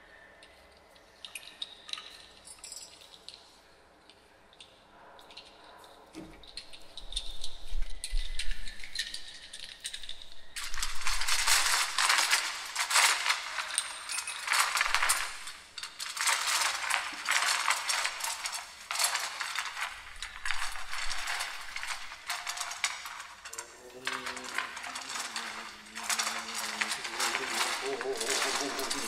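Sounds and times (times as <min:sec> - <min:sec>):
dense rattling and clinking: 0:06.2 - 0:29.0.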